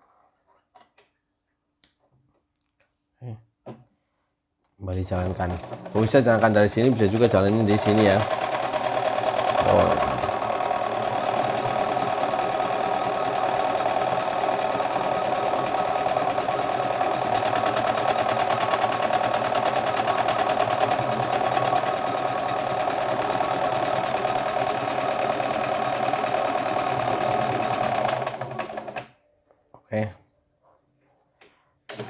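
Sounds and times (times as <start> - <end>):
sewing machine stitching: 5.0 - 29.2.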